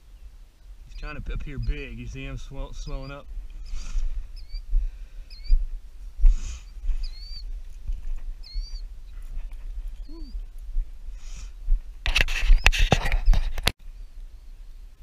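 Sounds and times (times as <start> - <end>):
bird chirping: 0.0 - 10.6, 12.5 - 15.0
footsteps through grass: 2.9 - 13.5.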